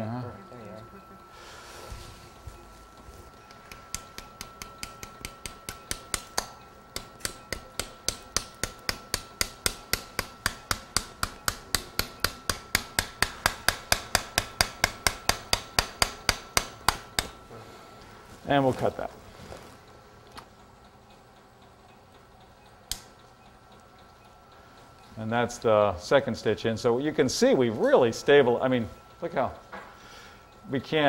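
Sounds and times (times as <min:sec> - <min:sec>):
metal mallet tapping: 0:03.7 - 0:17.4.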